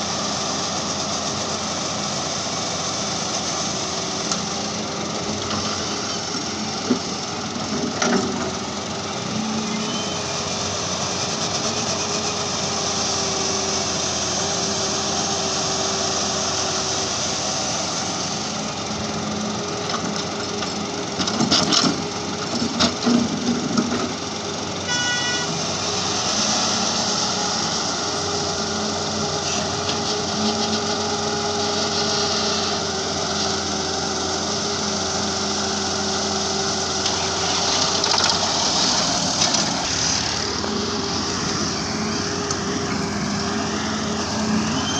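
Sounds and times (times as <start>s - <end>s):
diesel engines running under load: 0.0s - 44.9s
short high tone: 9.6s - 10.3s, 24.9s - 25.6s.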